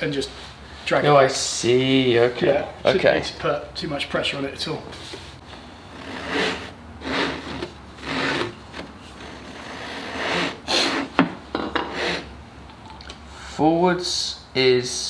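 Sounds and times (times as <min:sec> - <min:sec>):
hand saw rasping through wood: 0:05.9 - 0:11.2, 0:11.8 - 0:12.3.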